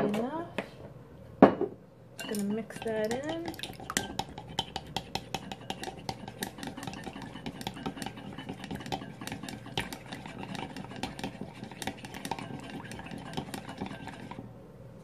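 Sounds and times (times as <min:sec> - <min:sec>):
whisk clicking against ceramic bowl: 0:02.2 - 0:14.4
swish of beaten egg: 0:02.8 - 0:14.4.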